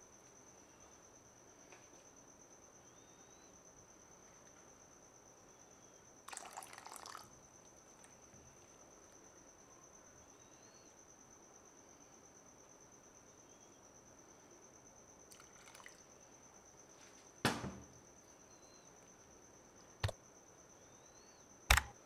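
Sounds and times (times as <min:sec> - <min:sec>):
faint high-pitched whine: 0:00.0 - 0:22.0
liquid splashing in a saucepan: 0:06.3 - 0:07.4, 0:15.3 - 0:16.1.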